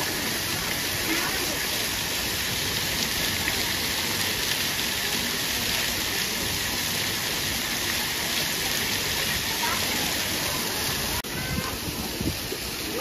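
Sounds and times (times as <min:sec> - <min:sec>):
falling and splashing water: 0:00.0 - 0:13.0.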